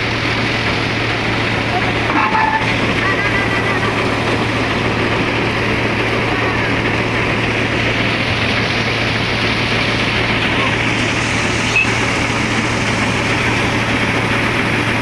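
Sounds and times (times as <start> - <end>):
thresher machine droning: 0.0 - 15.0.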